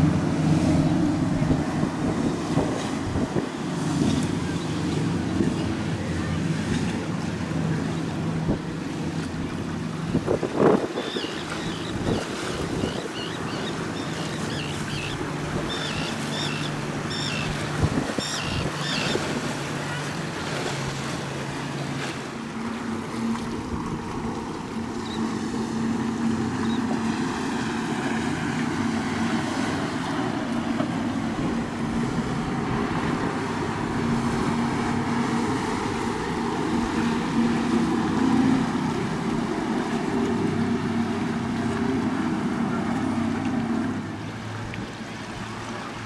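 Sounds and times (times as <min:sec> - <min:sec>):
motorboat engine droning: 0:00.0 - 0:46.0
wind and water noise: 0:00.0 - 0:46.0.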